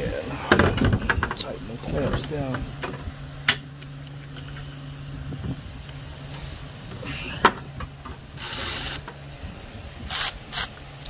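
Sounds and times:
steady low hum: 0.0 - 11.0
ratchet rasping: 8.4 - 9.0, 10.0 - 10.7.

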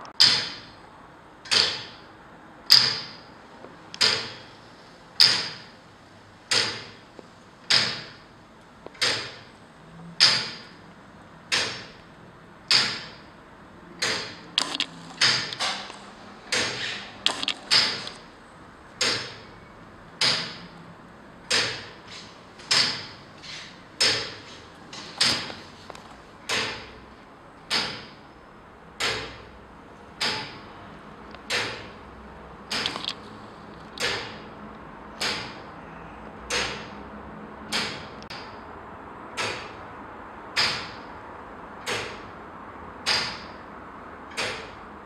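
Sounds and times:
quick clicks: 14.0 - 18.2, 32.7 - 34.4.

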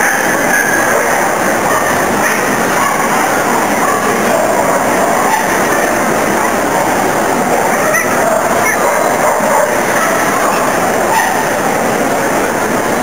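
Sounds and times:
crowd hubbub: 0.0 - 13.0
dog barking: 0.5 - 3.2, 3.8 - 5.7, 7.7 - 11.5.

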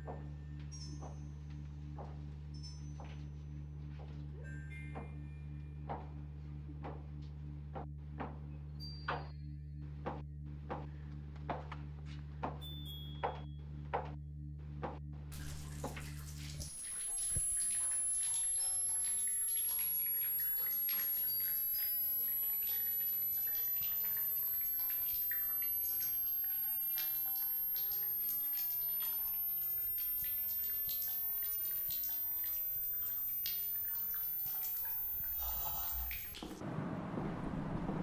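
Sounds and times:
low hum: 13.5 - 38.0
running water with dripping: 15.4 - 36.6
faint high tone: 16.8 - 36.4.

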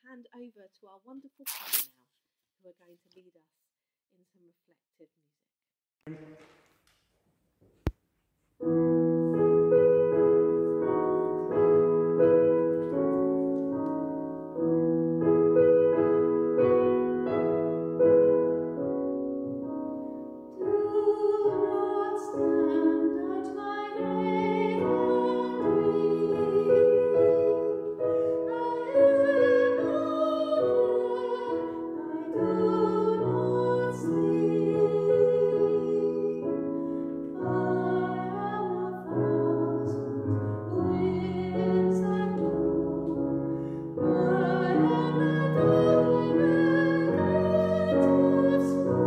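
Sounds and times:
choir singing: 44.1 - 49.0.

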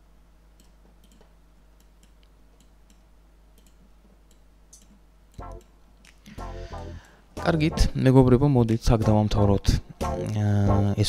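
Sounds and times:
low steady hum: 0.0 - 11.0
computer mouse clicks: 0.6 - 6.2.

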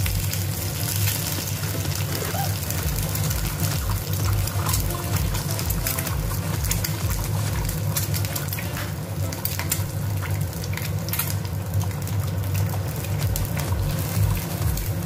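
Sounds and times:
eggs sizzling in oil: 0.0 - 15.0
oil popping and crackling: 0.0 - 15.0.

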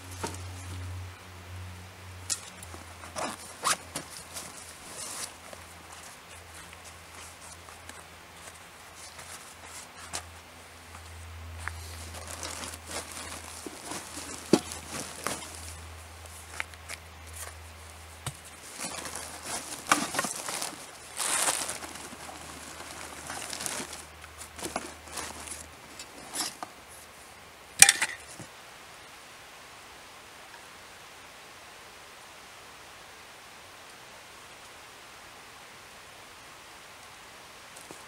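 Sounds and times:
plastic bag crinkling: 2.6 - 10.3, 11.6 - 16.7, 18.4 - 26.6.

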